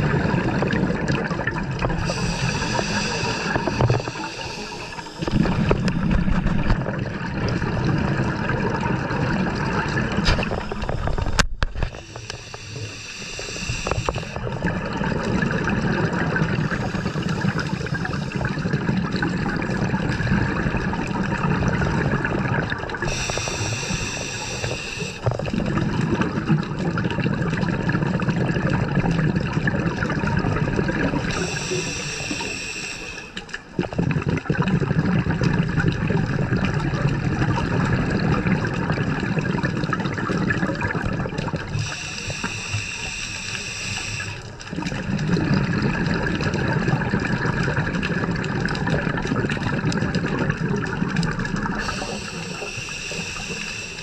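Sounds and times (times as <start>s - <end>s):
exhaled bubbles gurgling underwater: 0.0s - 54.0s
regulator hissing inhalation: 2.0s - 5.5s, 11.9s - 14.4s, 23.0s - 25.3s, 31.1s - 33.5s, 41.8s - 44.6s, 51.7s - 54.0s.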